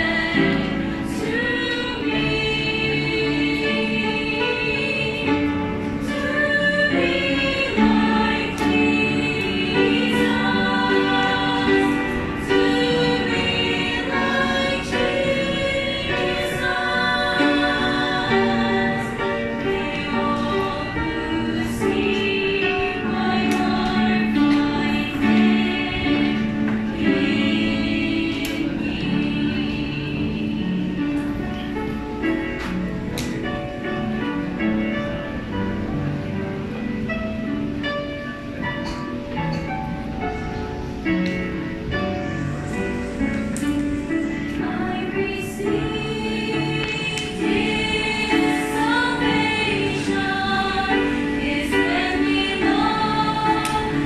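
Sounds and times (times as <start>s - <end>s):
children's choir singing gospel: 0.0s - 54.0s.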